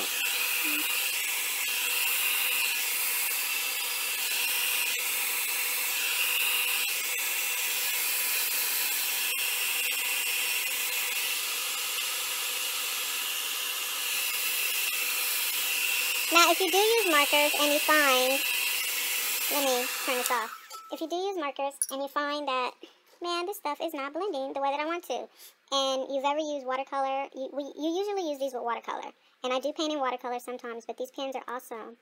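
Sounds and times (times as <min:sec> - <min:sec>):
hot-air blow dryer running: 0:00.0 - 0:20.8.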